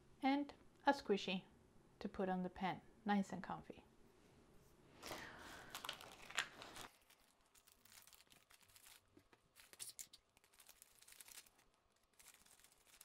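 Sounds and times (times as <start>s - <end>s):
plastic bag crinkling: 5.0s - 13.0s.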